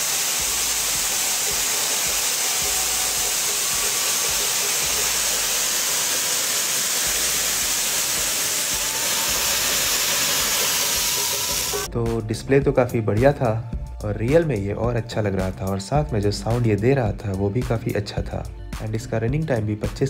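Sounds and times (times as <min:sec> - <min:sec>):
fountain firework hissing: 0:00.0 - 0:11.9.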